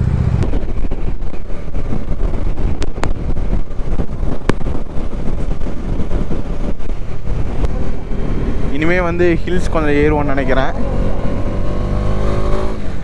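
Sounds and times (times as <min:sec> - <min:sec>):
motorcycle engine running: 0:00.0 - 0:13.0
wind buffeting microphone: 0:00.0 - 0:13.0.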